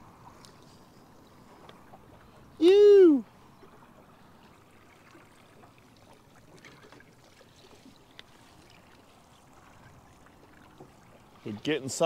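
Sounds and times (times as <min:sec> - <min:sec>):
water lapping at boat hull: 0:00.0 - 0:12.0
light ticks: 0:08.1 - 0:08.3.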